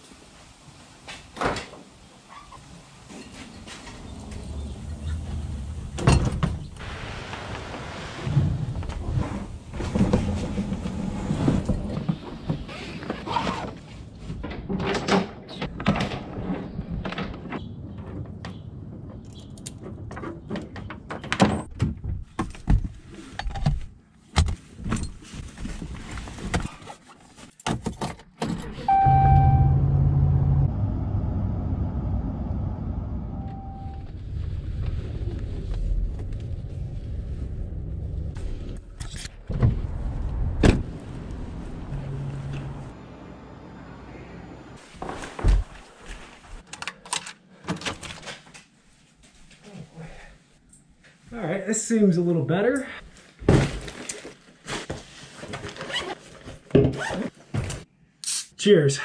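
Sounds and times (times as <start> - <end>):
short electronic chime: 28.9 - 30.7, 33.4 - 34.1
truck engine humming: 28.9 - 34.1, 40.9 - 44.8.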